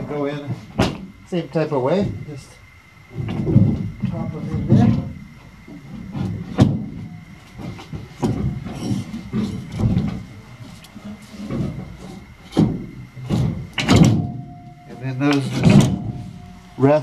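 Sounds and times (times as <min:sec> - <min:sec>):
lumber and metal knocking on wood: 0:05.7 - 0:10.2, 0:11.4 - 0:16.5.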